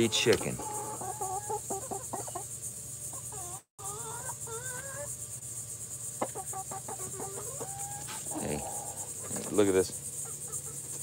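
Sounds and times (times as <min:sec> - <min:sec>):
hens clucking and trilling: 0:00.0 - 0:11.0
insects chorus: 0:00.0 - 0:11.0.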